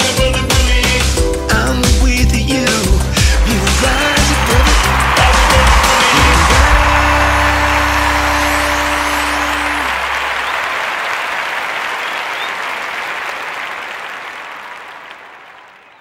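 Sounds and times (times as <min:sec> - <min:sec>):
audience applauding: 0:03.4 - 0:16.0.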